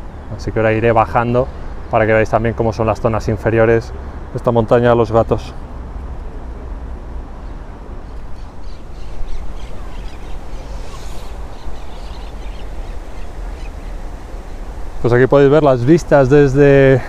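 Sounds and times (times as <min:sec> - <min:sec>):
birds calling: 0:07.4 - 0:17.0.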